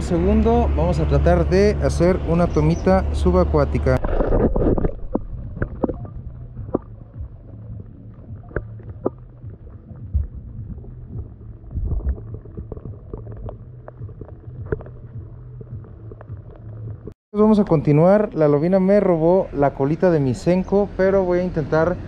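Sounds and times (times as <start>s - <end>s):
steady low hum: 0.0s - 17.1s
underwater water gurgling: 3.8s - 17.1s.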